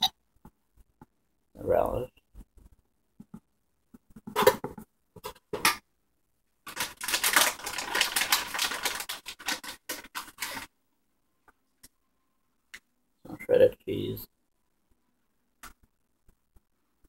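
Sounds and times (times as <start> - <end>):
rapid crackling and rustling: 6.6 - 10.8.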